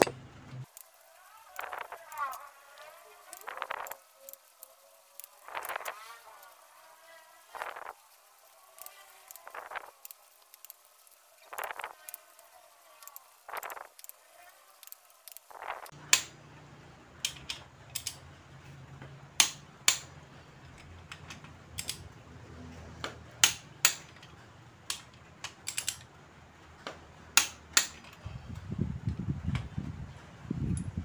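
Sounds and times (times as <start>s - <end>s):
torque wrench clicks: 17.2s - 18.2s, 21.1s - 22.1s, 24.9s - 26.1s.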